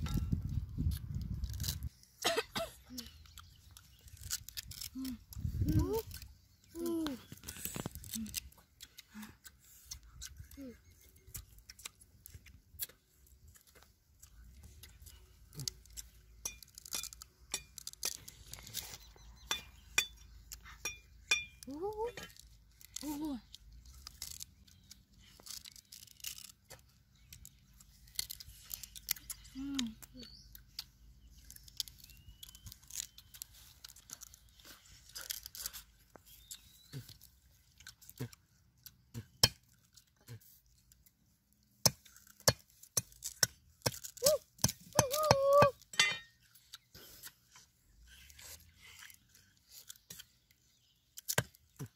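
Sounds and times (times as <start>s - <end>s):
sugarcane being chewed: 0.1s - 51.9s
knife cutting sugarcane: 41.7s - 50.4s, 51.1s - 51.9s.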